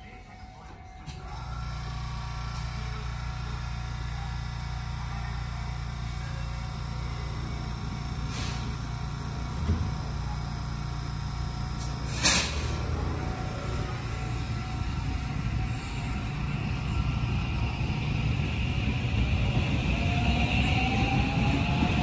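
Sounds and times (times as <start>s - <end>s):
electric train humming: 0.0s - 22.0s
air hiss burst: 8.2s - 8.7s, 11.8s - 13.0s
train doors sliding shut: 8.2s - 8.7s, 11.8s - 13.2s.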